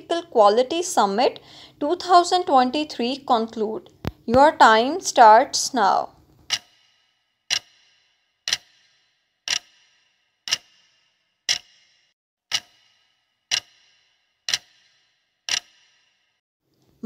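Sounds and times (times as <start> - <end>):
clock ticking: 6.4 - 16.0.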